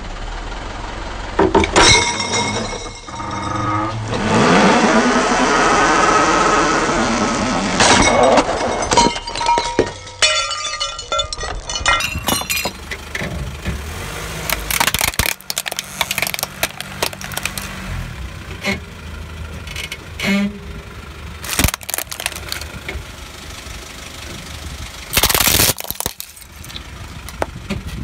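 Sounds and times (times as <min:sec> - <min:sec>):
car engine running low: 0:00.0 - 0:28.0
glass clinking and rattling: 0:08.0 - 0:12.9
wine glasses cracking under tyre: 0:14.4 - 0:17.8, 0:21.4 - 0:22.7, 0:25.1 - 0:27.5
plastic toy cracking and creaking: 0:14.5 - 0:17.8, 0:21.4 - 0:22.7, 0:25.1 - 0:27.5.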